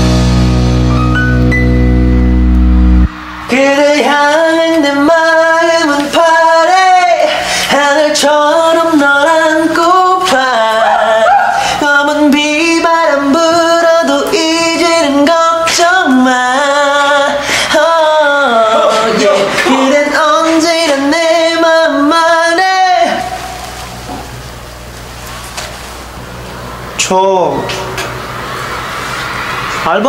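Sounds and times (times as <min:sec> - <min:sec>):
backing track: 0:00.0 - 0:24.9
pop song vocal melody: 0:03.0 - 0:23.8.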